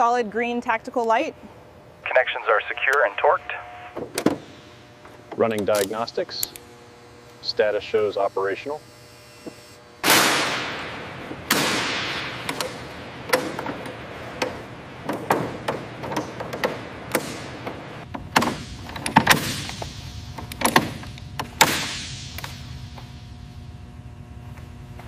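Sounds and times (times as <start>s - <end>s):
reverberant metal bangs: 10.0s - 19.8s.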